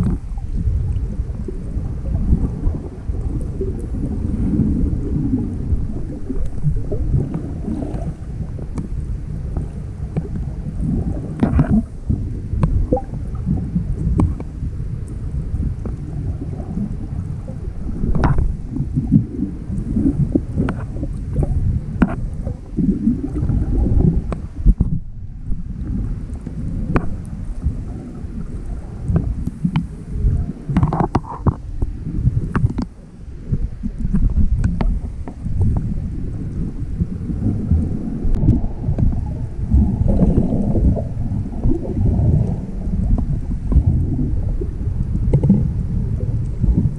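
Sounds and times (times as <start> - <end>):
sharp underwater clicks: 0.0 - 0.4, 6.0 - 15.2, 18.0 - 25.0, 25.8 - 27.7, 29.0 - 30.0, 30.7 - 33.0, 33.9 - 35.9, 45.0 - 45.7
muffled underwater rumble: 0.0 - 46.9.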